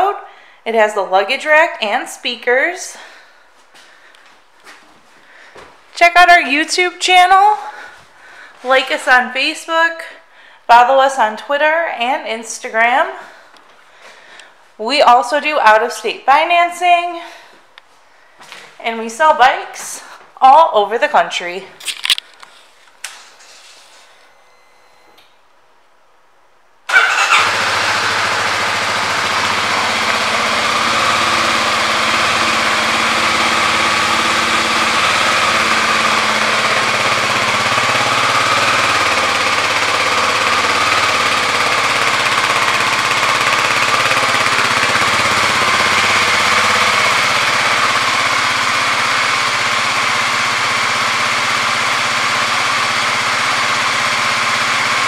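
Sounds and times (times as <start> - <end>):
motorcycle engine starting and idling: 26.9 - 55.0.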